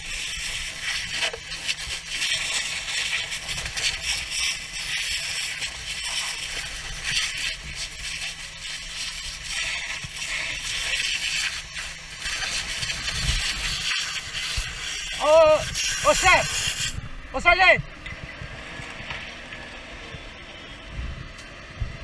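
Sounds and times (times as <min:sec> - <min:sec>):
hose water spraying on fire: 0:00.0 - 0:20.6
low rumble: 0:16.8 - 0:22.0.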